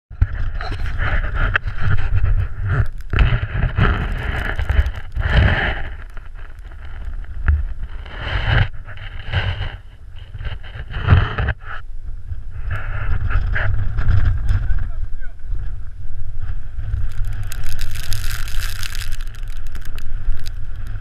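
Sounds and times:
wind buffeting microphone: 0.1s - 21.0s.

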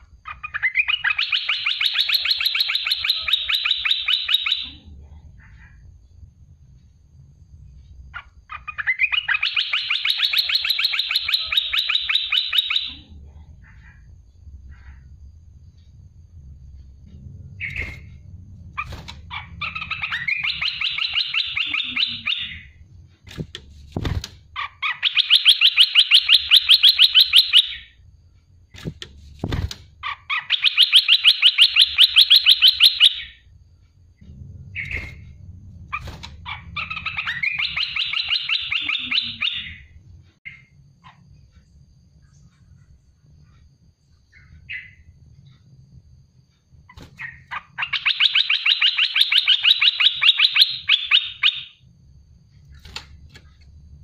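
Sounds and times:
bird singing rapid notes: 0.0s - 4.7s, 8.2s - 13.0s, 17.6s - 18.2s, 18.8s - 23.5s, 24.6s - 28.0s, 30.0s - 33.4s, 35.9s - 41.2s, 46.9s - 51.8s
low hum: 4.6s - 9.4s, 12.9s - 24.9s, 33.2s - 47.9s.

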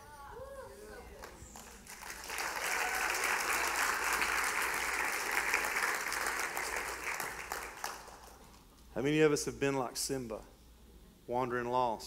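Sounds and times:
congregation applauding: 1.2s - 8.7s.

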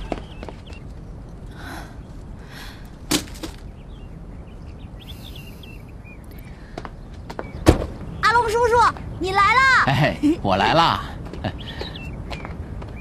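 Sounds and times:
faint bird chirps: 3.6s - 9.6s, 11.5s - 13.0s.

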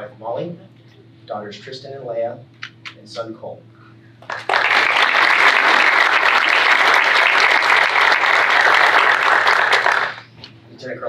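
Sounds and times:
audience applauding: 4.2s - 10.3s.

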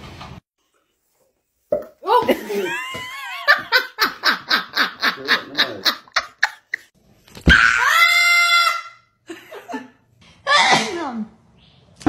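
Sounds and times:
woman laughing: 2.1s - 6.9s.

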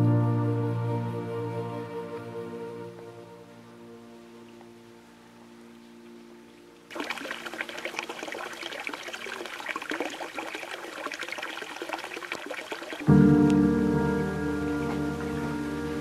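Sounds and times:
soft background music: 0.0s - 6.9s, 13.1s - 16.0s
water splashing into stone basin: 6.9s - 13.3s.

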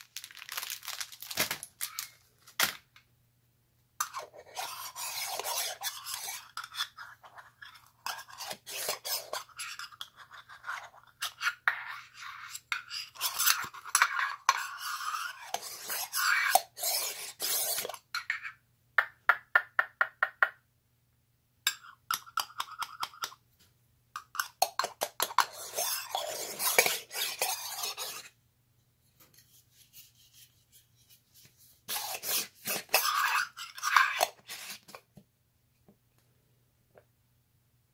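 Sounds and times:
metal tin scraping: 24.4s - 28.3s, 31.9s - 35.0s.

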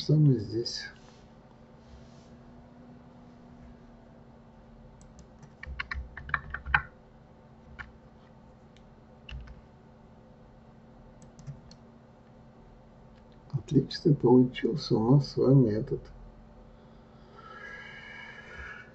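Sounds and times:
keyboard keys clicking: 5.0s - 6.9s, 9.3s - 9.6s, 11.2s - 11.8s.

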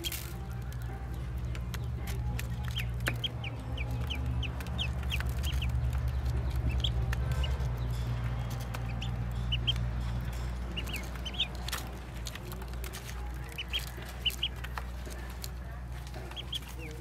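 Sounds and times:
bills pecking at feed dish: 0.0s - 17.0s
ducklings peeping: 0.0s - 17.0s.

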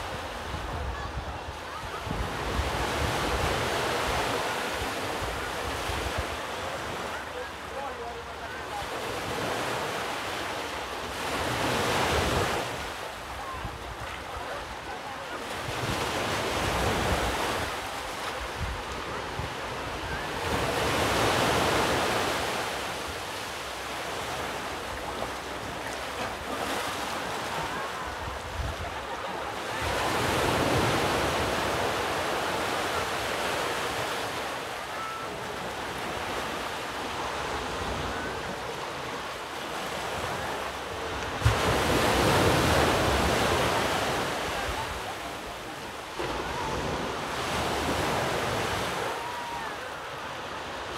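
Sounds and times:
ocean surf washing on shore: 0.0s - 50.9s.

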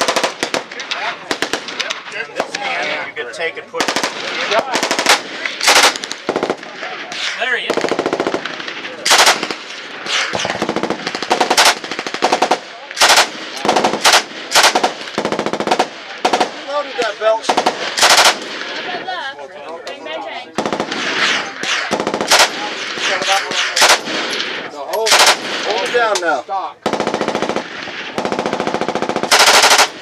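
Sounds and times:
machine gun bursts: 4.8s - 6.6s, 9.1s - 9.6s, 10.4s - 16.5s, 17.5s - 18.6s, 21.9s - 22.6s, 23.8s - 24.3s, 25.0s - 25.8s, 28.2s - 30.0s.

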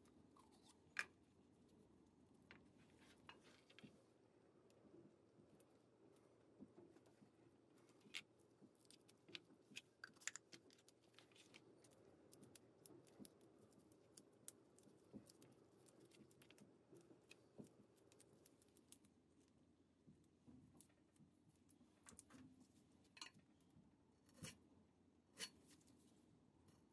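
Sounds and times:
low room tone: 0.0s - 26.9s
gloved hands clicking and crinkling: 8.0s - 19.2s.

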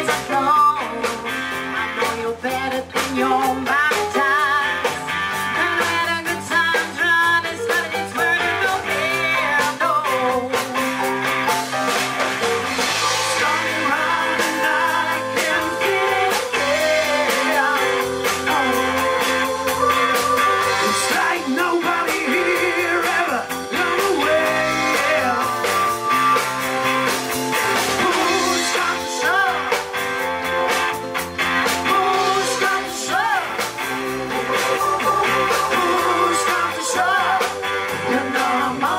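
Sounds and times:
woman singing: 0.0s - 1.3s, 2.0s - 5.0s, 5.6s - 10.8s, 13.4s - 25.6s, 27.9s - 29.8s, 31.9s - 33.7s, 34.8s - 38.9s
drum kit: 0.0s - 38.9s
electric bass: 0.0s - 38.9s
electric guitar: 0.0s - 38.9s
keyboard: 0.0s - 38.9s.

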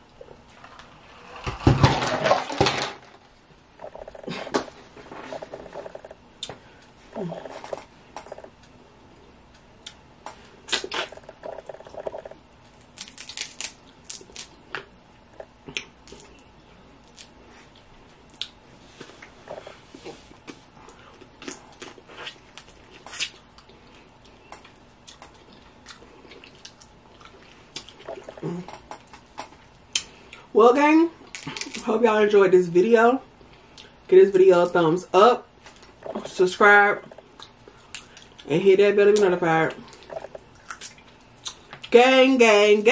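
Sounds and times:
crab shells cracking: 13.0s - 14.5s
wet chewing: 39.8s - 41.9s.

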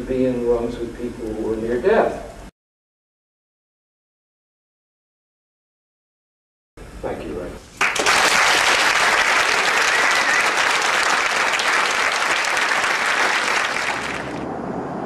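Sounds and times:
audience applauding: 7.8s - 14.4s.

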